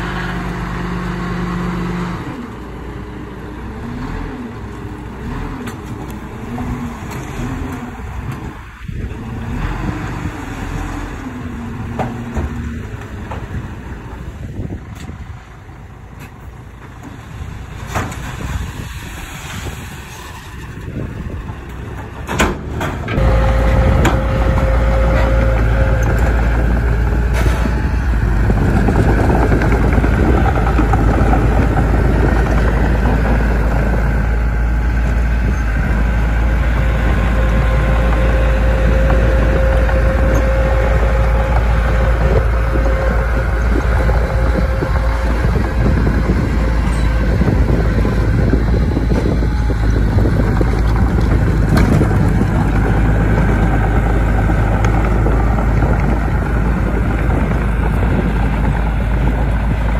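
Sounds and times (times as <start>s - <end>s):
diesel machinery engine running: 0.0s - 59.9s
thin whine: 23.1s - 28.0s, 35.4s - 50.6s.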